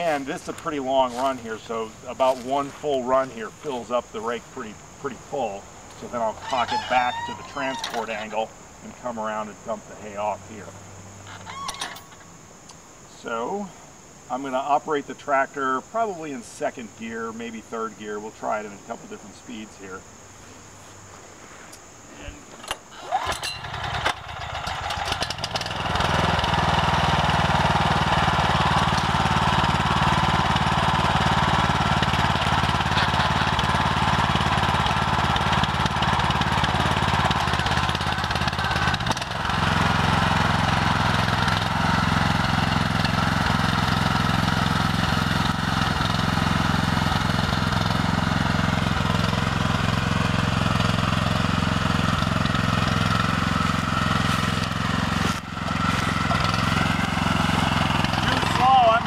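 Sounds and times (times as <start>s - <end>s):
walk-behind tractor engine running: 0.0s - 4.5s, 5.1s - 8.3s, 22.6s - 59.0s.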